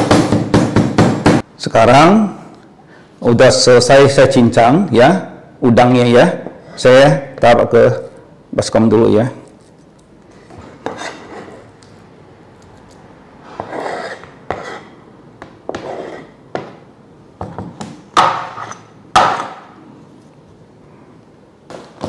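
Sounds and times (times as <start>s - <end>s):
knife scraping cutting board: 10.4s - 11.7s, 13.4s - 15.0s, 15.7s - 16.4s, 18.4s - 18.9s.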